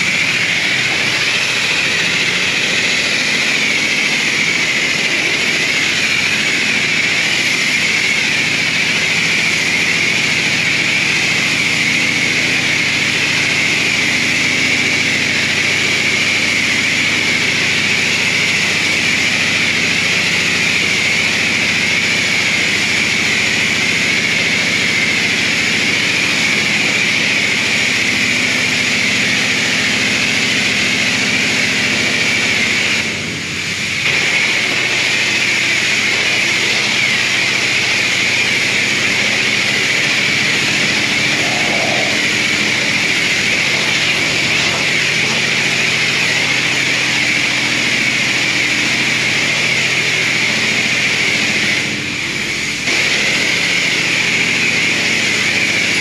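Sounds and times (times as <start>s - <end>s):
high-pressure water spray hiss: 33.6s - 56.0s.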